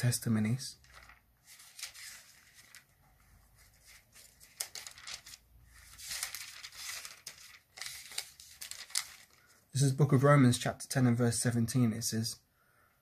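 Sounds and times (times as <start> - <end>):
thin pages rustling: 0.8 - 9.6.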